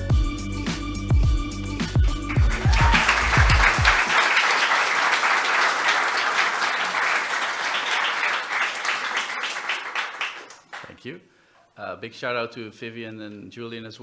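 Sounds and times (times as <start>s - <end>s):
music track: 1.4s - 4.5s
audience applauding: 2.1s - 11.0s.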